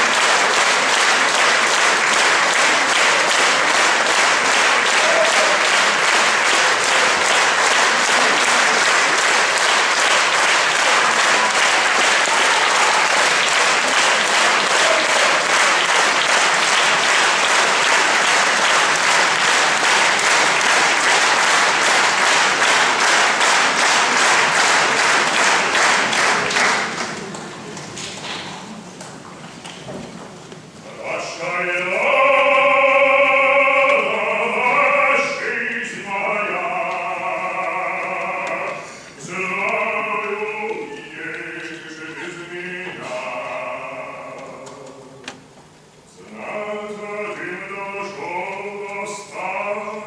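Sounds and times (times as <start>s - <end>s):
audience applauding: 0.0s - 28.8s.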